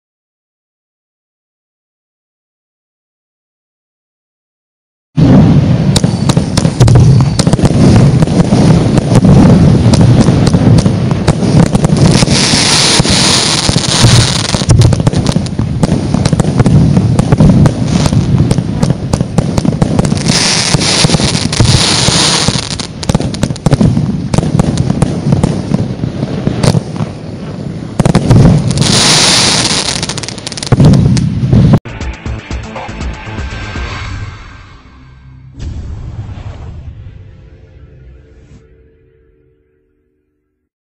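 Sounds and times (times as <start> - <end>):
firework launches and bangs: 5.2 - 31.8
firework crackling: 5.2 - 32.4.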